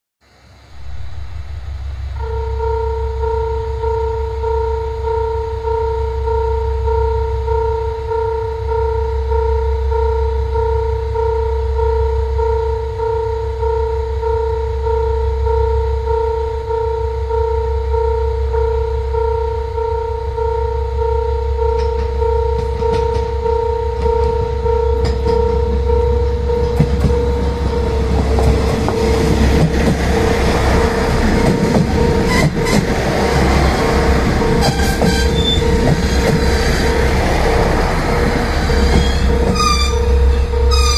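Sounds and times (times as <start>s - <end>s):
diesel railcar rumble: 0.3s - 40.9s
low steady rumble: 0.4s - 5.1s
level-crossing warning bell: 2.2s - 40.9s.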